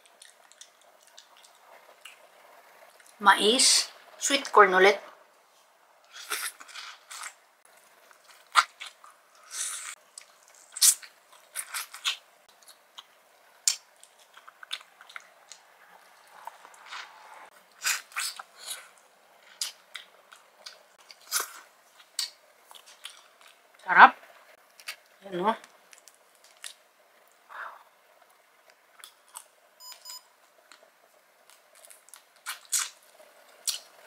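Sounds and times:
person biting and chewing corn: 6.1 - 7.4, 8.1 - 23.6, 31.5 - 33.9.

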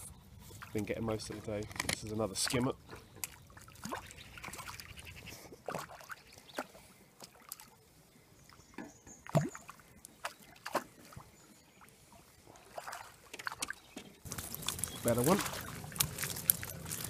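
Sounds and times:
fish splashing at water surface: 12.6 - 17.0.

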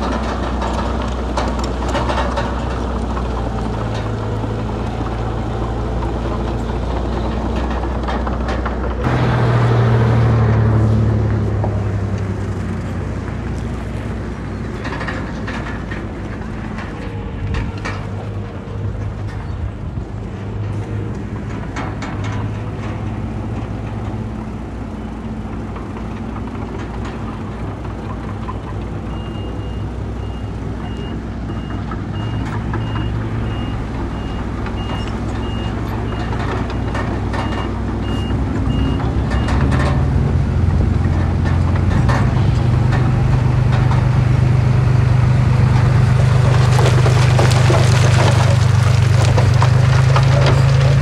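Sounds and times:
diesel engine revving: 0.0 - 51.0
reversing alarm beeping: 29.2 - 39.7
loose stone clattering: 46.0 - 51.0.

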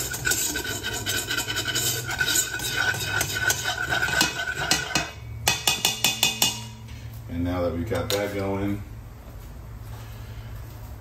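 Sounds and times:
metal whisk scraping a pot: 0.0 - 6.6.

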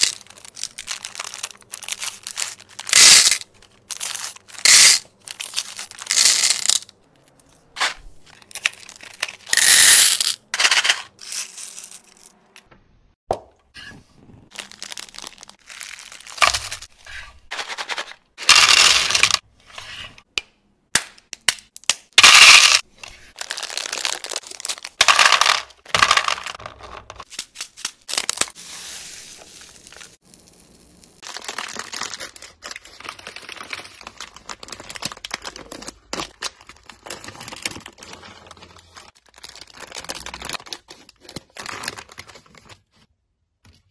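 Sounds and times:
candies clattering into plastic tray: 0.0 - 7.0, 7.8 - 12.3, 14.6 - 16.9, 17.5 - 19.4, 22.1 - 28.6
plastic wrappers crinkling and tearing: 0.0 - 7.5, 8.2 - 9.5, 14.5 - 16.9, 23.0 - 26.6, 27.2 - 43.0.

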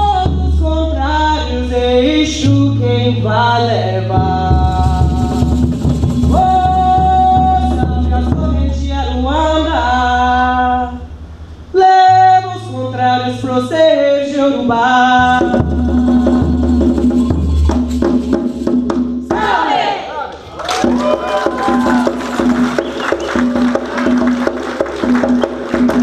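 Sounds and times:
solo voice singing: 0.0 - 5.7, 6.3 - 11.1, 11.7 - 17.3.

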